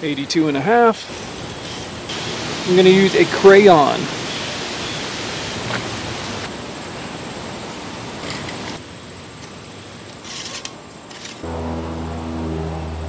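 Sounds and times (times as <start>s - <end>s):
outdoor hiss: 0.0s - 11.8s
steel tape measure rattling: 10.2s - 11.4s
low steady hum: 11.4s - 13.0s.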